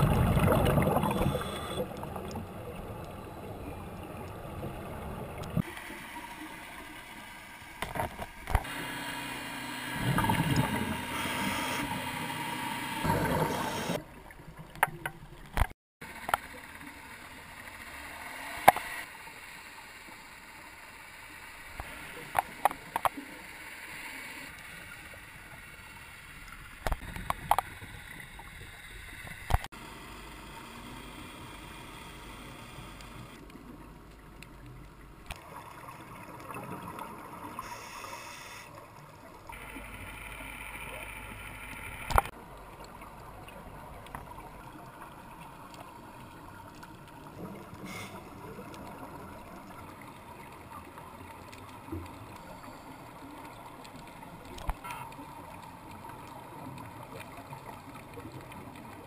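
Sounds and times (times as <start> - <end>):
muffled underwater hiss: 16.1 - 34.5, 35.3 - 59.0
sharp clicks: 40.8 - 42.3.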